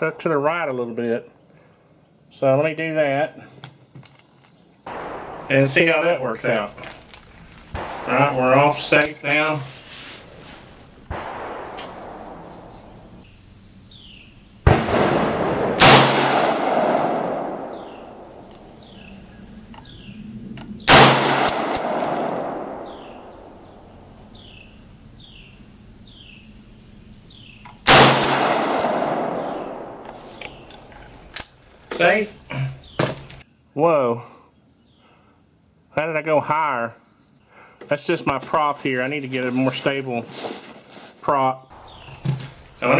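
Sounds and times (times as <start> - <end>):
rifle shots echoing: 4.9 - 9.3, 10.8 - 13.2, 14.7 - 19.3, 20.9 - 23.9, 27.9 - 30.9.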